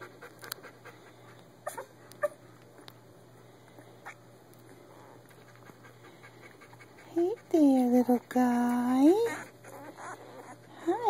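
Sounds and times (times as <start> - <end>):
puppies squeaking: 8.7 - 10.8.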